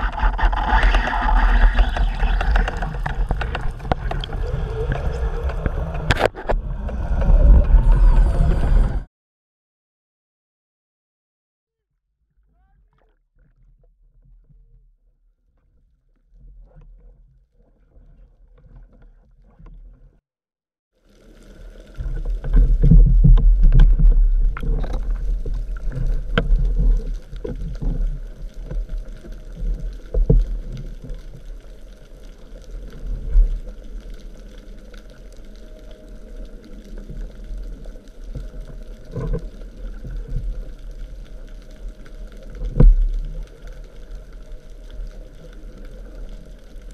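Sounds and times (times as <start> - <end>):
water rushing against camera housing: 0.0 - 8.5, 21.7 - 31.5.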